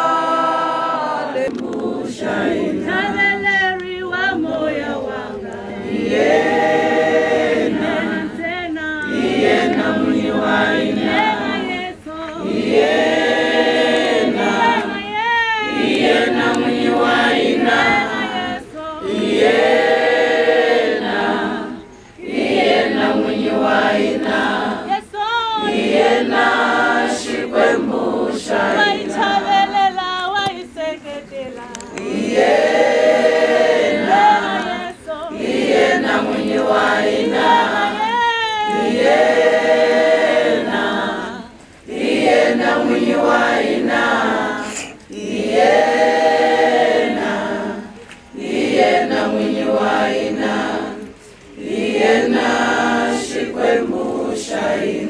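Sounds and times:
crowd singing a hymn: 0:00.0 - 0:55.0.

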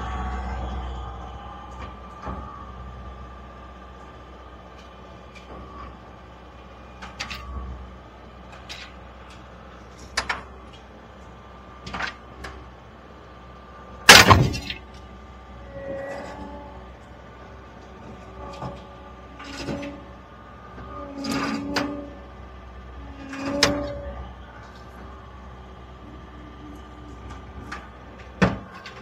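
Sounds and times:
skid steer engine running: 0:00.0 - 0:29.0
loud metal crash: 0:14.1 - 0:14.8
metal clanks: 0:14.1 - 0:14.9.

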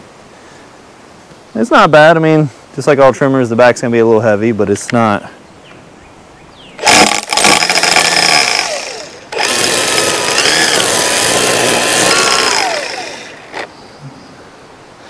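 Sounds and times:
string trimmer motor whirring: 0:06.8 - 0:13.7.

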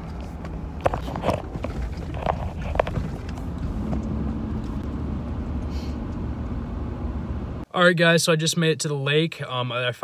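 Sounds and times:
truck engine and road rumble: 0:00.0 - 0:07.7
sharp knocks and rattles: 0:00.8 - 0:04.8.

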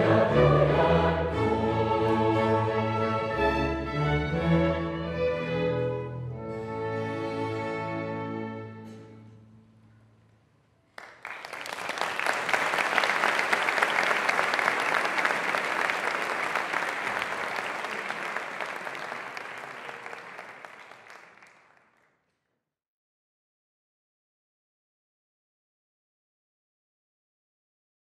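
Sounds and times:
audience applause: 0:11.0 - 0:22.1.

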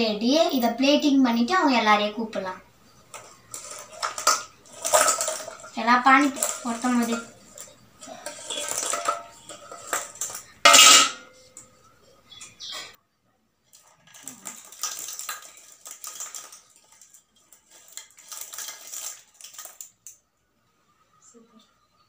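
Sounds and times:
steel bowl clanking: 0:02.9 - 0:12.6, 0:13.7 - 0:19.9
fried food rattling onto leaf: 0:03.1 - 0:10.8, 0:13.7 - 0:20.2.

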